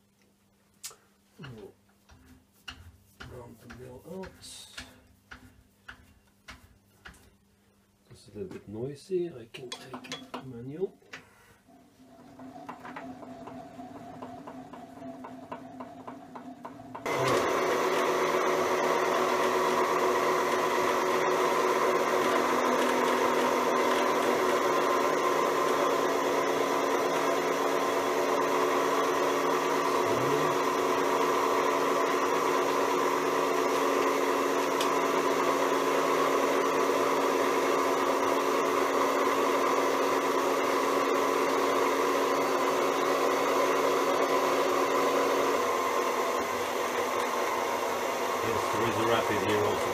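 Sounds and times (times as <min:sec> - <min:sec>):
milling machine feed motor humming: 0:11.7 - 0:49.9.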